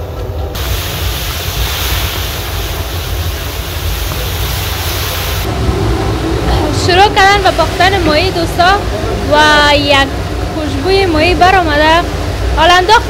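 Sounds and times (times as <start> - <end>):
low rumble: 0.0 - 12.6
fish sizzling in hot oil: 0.6 - 5.5.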